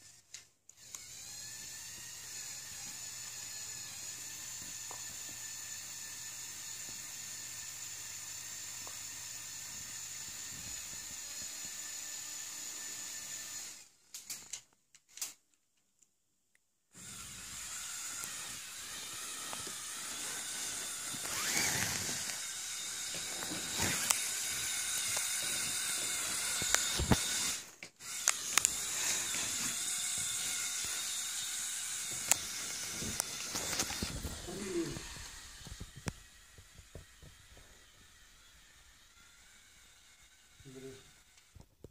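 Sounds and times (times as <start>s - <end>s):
small electric motor whirring: 0.0s - 14.6s, 16.9s - 41.9s
plastic gears clicking: 14.1s - 15.4s.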